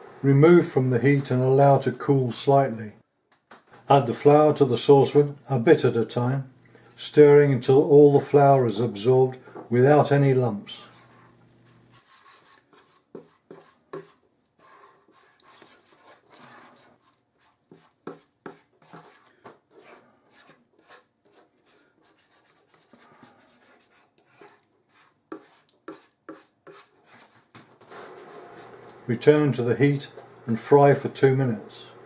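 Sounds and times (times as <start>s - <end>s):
plastic spatula scraping saucepan: 10.2s - 29.0s.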